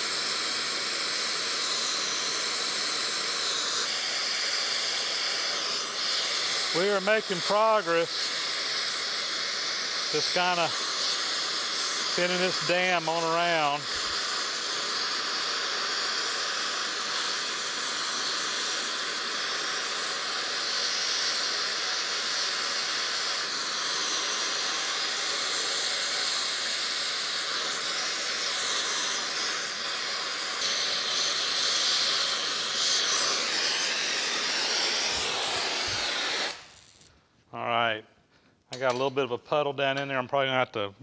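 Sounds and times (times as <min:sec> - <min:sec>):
torch flame hissing: 0:00.0 - 0:37.2.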